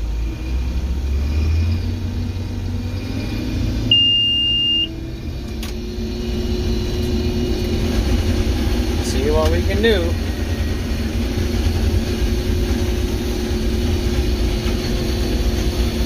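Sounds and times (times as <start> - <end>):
combine harvester rumble: 0.0 - 16.0
high beep: 3.9 - 5.0.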